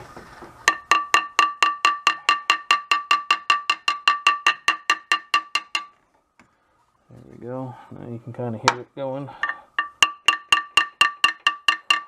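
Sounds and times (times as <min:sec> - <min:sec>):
hammer tapping on metal seal: 0:00.7 - 0:06.0, 0:09.4 - 0:12.0.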